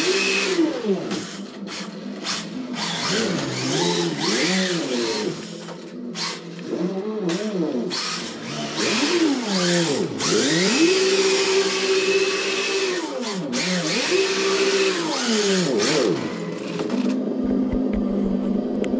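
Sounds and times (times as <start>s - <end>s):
toy car engine sound revving: 0.0s - 17.2s.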